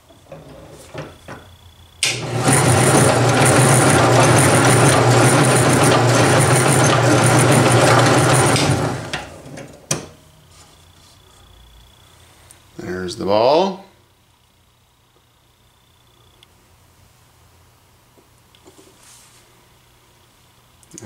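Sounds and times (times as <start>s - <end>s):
drill press motor running: 2.0s - 9.9s.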